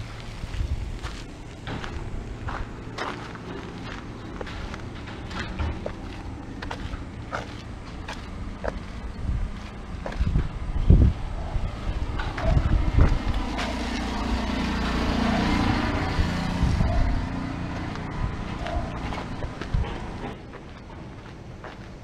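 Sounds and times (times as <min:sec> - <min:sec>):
motor vehicle passing: 0:00.0 - 0:21.2.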